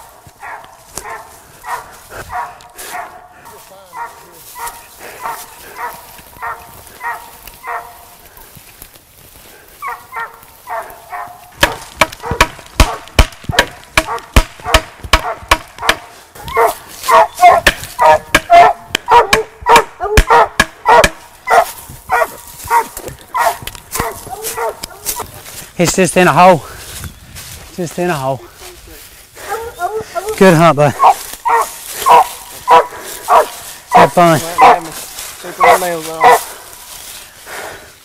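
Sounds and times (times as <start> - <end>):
dogs barking: 0.0 - 8.3, 9.8 - 25.4, 29.4 - 36.8
loud sharp cracks and knocks: 11.6 - 16.1.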